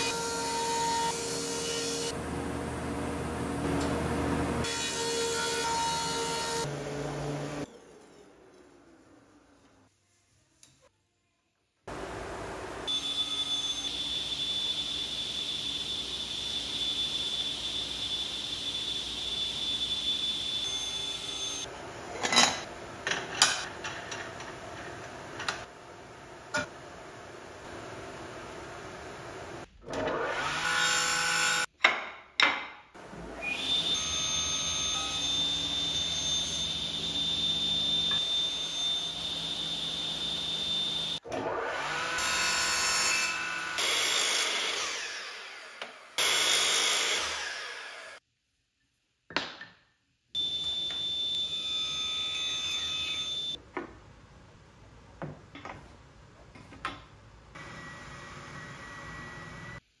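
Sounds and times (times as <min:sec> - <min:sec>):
woodworking machine motor whining: 0:33.0 - 0:42.1, 0:57.6 - 0:59.8
mitre saw cutting wood: 0:40.8 - 0:48.2.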